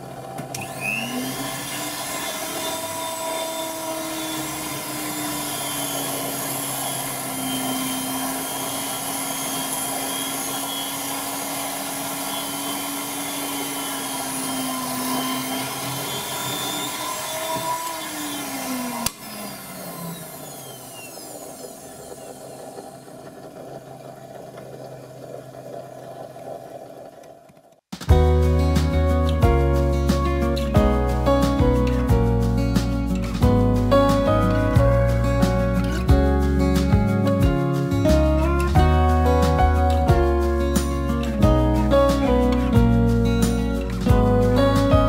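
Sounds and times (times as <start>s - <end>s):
drill press drilling metal: 0.0s - 24.7s.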